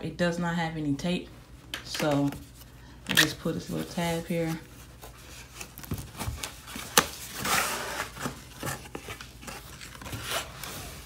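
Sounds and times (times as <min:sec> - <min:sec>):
cardboard rustling and scraping: 0:03.6 - 0:11.0
cardboard flap snapping: 0:05.6 - 0:10.6.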